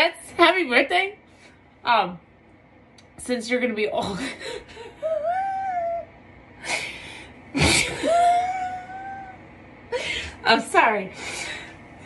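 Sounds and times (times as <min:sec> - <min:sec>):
woman laughing: 0:04.0 - 0:06.1, 0:07.5 - 0:09.3.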